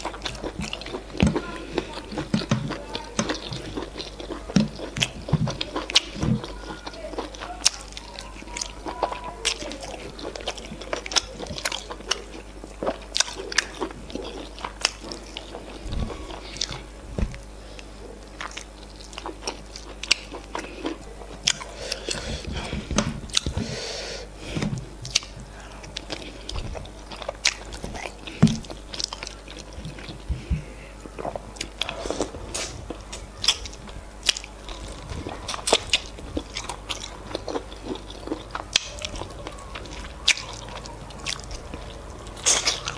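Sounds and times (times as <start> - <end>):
wet chewing: 0.0 - 42.9
lip-smacking: 31.1 - 42.9.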